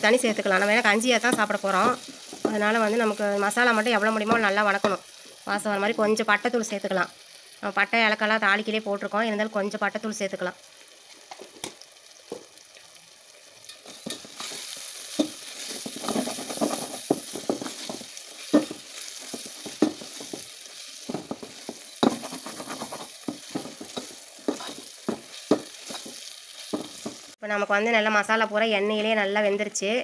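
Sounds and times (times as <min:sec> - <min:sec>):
masala sizzling in oil: 0:00.0 - 0:27.4
spatula scraping and knocking pot: 0:13.7 - 0:27.3.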